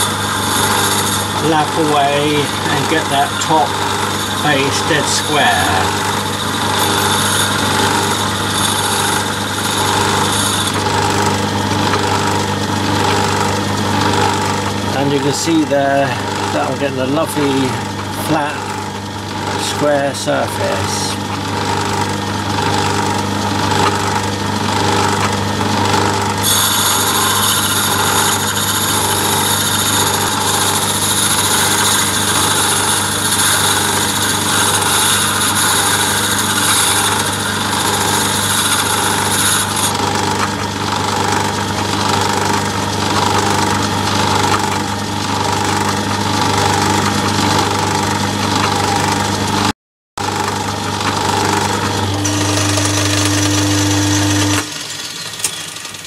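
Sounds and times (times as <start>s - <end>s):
tool scraping on lapping wheel: 0.0s - 12.2s
lathe running: 0.0s - 56.0s.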